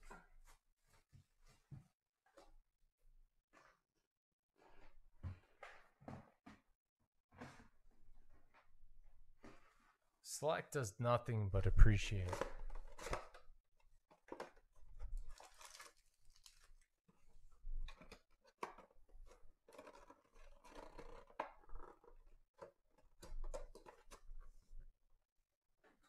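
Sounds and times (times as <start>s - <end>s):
cardboard rustling and tearing: 14.1s - 16.8s, 17.8s - 22.2s.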